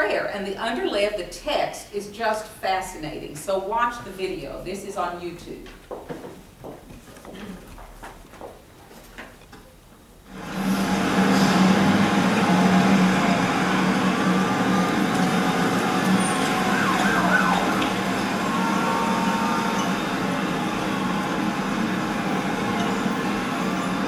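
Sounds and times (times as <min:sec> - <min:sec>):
siren: 0:12.4 - 0:24.0.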